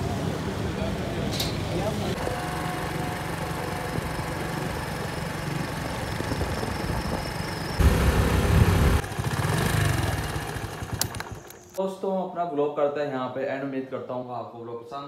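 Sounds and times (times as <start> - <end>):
road and wind noise: 0.0 - 11.8
vehicle engine running: 1.9 - 11.8.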